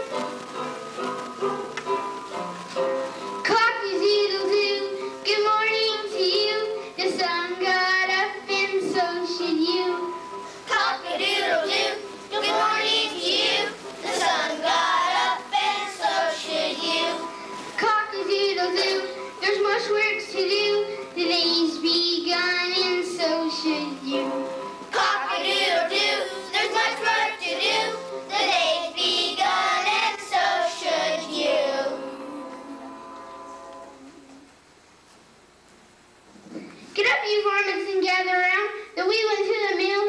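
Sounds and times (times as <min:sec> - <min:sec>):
musical accompaniment: 0:00.0 - 0:34.6
children singing: 0:10.7 - 0:19.6, 0:24.9 - 0:33.5.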